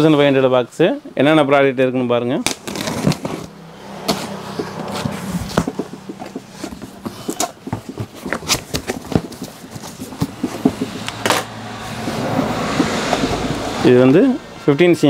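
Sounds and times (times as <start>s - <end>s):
cardboard flaps pulled open: 2.4s - 11.5s
box cutter slitting tape: 2.4s - 12.2s.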